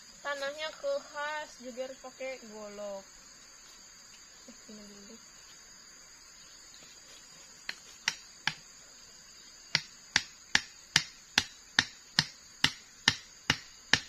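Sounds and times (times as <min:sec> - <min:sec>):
machete knocking bamboo stake: 0:07.7 - 0:08.6, 0:09.7 - 0:14.0.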